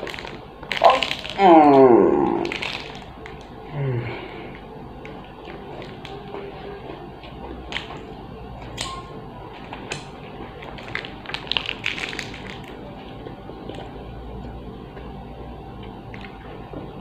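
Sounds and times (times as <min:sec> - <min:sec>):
crunchy snack being eaten: 0:00.0 - 0:03.6, 0:09.6 - 0:12.8.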